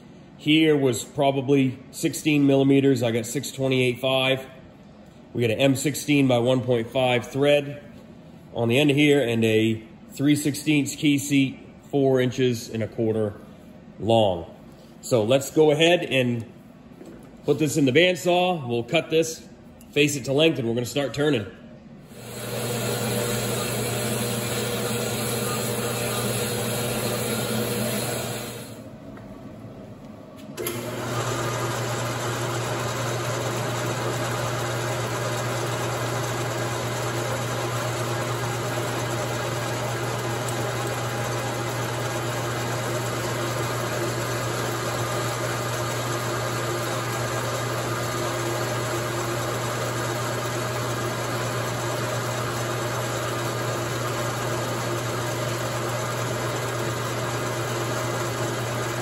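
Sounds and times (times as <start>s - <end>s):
bandsaw cutting metal: 22.1s - 28.8s
metal lathe humming and whining: 22.1s - 28.8s, 30.6s - 59.0s.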